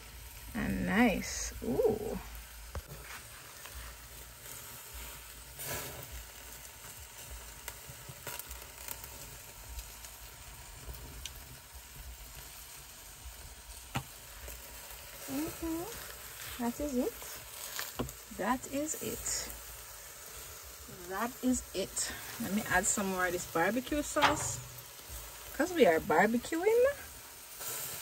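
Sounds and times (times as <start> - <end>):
fire pops and crackles: 0.0 - 28.0
food sizzling on grill: 0.0 - 28.0.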